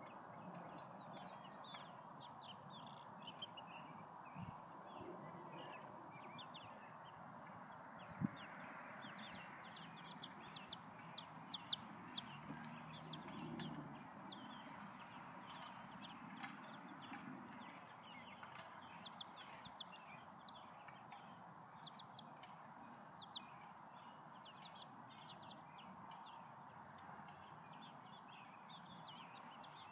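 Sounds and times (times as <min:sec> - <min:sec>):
chicks peeping: 0:08.2 - 0:21.2, 0:21.8 - 0:26.2.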